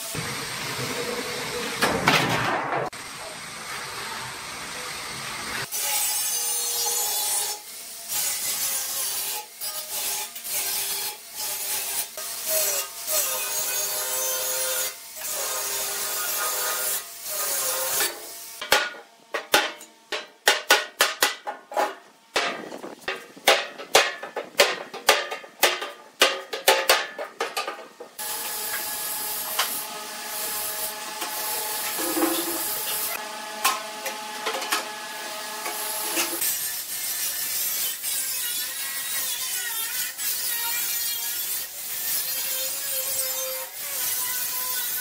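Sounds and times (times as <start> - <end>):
angle grinder cutting metal: 5.0 - 18.7, 28.2 - 45.0.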